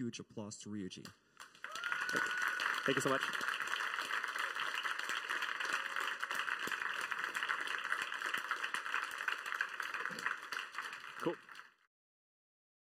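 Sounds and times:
audience applauding: 1.4 - 11.9.

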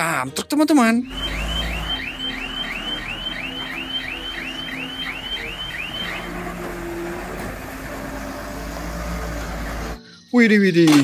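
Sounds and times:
truck warning alarm chirping: 1.0 - 8.0.

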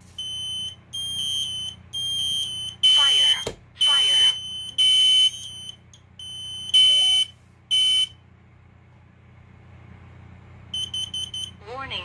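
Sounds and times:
high-pitched alarm beeps: 0.2 - 8.2, 10.7 - 11.6
quick short alarm beeps: 10.8 - 11.5.

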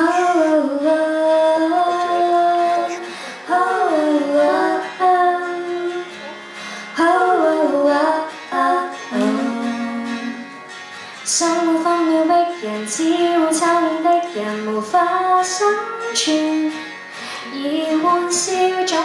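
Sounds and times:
woman singing slow melody: 0.0 - 10.5, 11.3 - 16.8, 17.4 - 19.0
acoustic guitar: 0.0 - 19.0.

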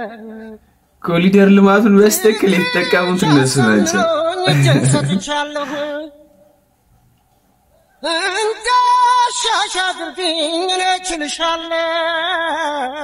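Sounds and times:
person singing long notes: 2.4 - 6.6.

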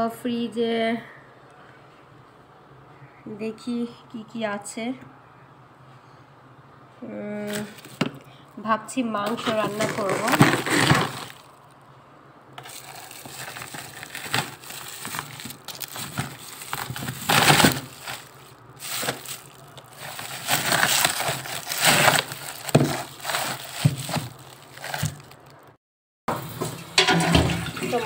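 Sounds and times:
plastic bags rustling: 7.4 - 8.3, 9.1 - 11.8, 12.6 - 25.8
knocks and cracks of frozen packets: 7.5 - 8.3, 9.3 - 11.5, 12.6 - 25.6.

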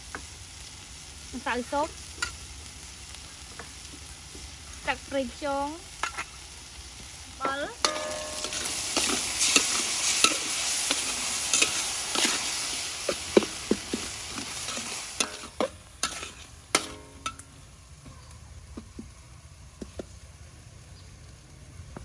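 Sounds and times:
meat sizzling: 0.0 - 21.7
metal spatula scraping a wok: 6.0 - 6.4, 7.8 - 17.5.

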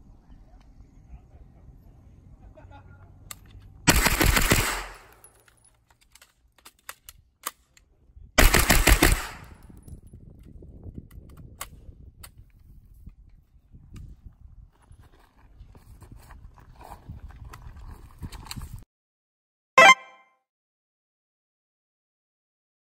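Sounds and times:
carbine gunfire bursts: 3.9 - 5.2, 8.4 - 9.6.

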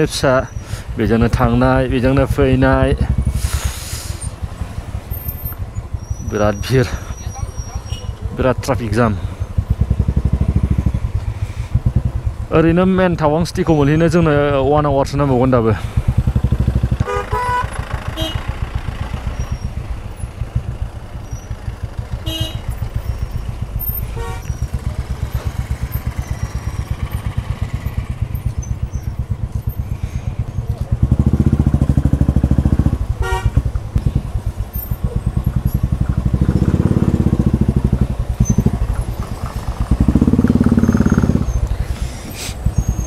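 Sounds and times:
motorcycle engine idling: 0.0 - 43.0
horn toots: 16.9 - 18.7, 22.2 - 22.9, 23.8 - 25.6, 33.1 - 33.8.

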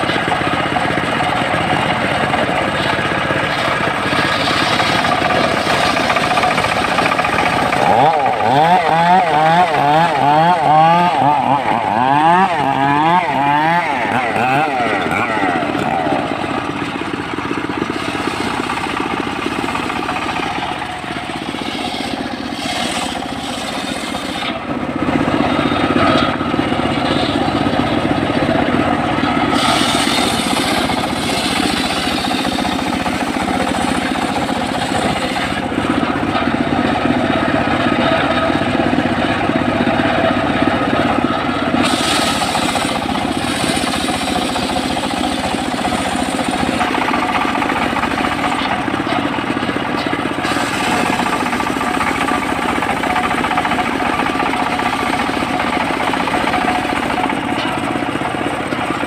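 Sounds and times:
sawmill engine running: 0.0 - 59.0
saw blade ripping through log: 2.7 - 16.3, 17.8 - 24.7, 29.4 - 35.7, 41.7 - 48.8, 50.4 - 57.1.

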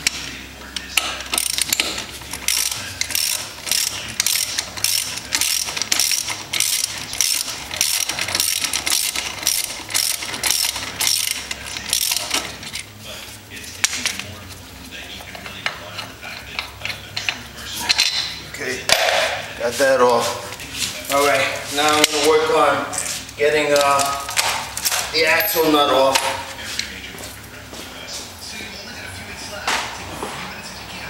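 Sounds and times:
ratchet wrench clicking: 0.8 - 12.9.

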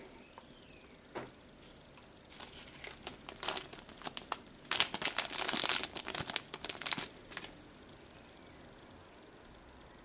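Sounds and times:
plastic bag crinkling: 2.3 - 7.6.

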